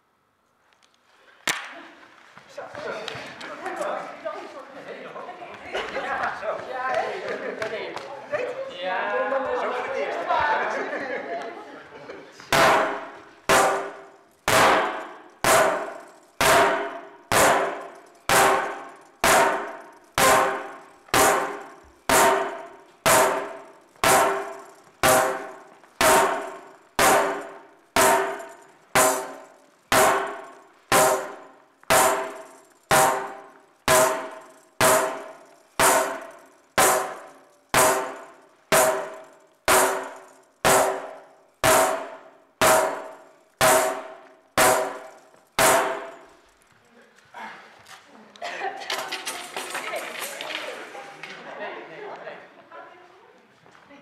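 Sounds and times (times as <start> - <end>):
tambourine struck with stick: 12.5 - 46.4.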